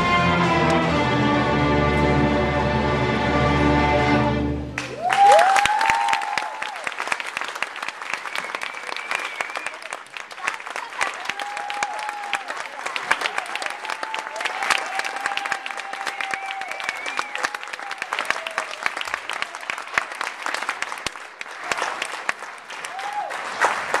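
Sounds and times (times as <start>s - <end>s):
audience cheering: 4.8s - 10.1s, 10.7s - 20.2s, 22.8s - 24.0s
audience clapping: 4.8s - 24.0s.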